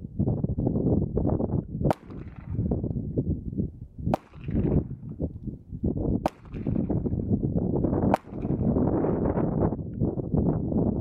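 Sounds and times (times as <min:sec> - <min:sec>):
wind buffeting microphone: 0:00.0 - 0:11.0
pistol shots: 0:01.9 - 0:02.6, 0:04.1 - 0:04.8, 0:06.2 - 0:07.0, 0:08.0 - 0:08.7.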